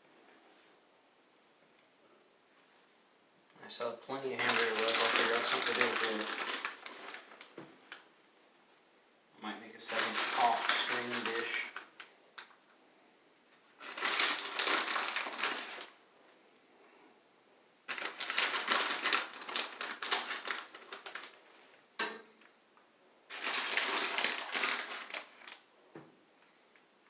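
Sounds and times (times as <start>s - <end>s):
plastic bag crinkling: 4.1s - 8.0s, 9.8s - 12.6s, 13.6s - 16.0s, 17.9s - 21.8s, 23.3s - 25.7s.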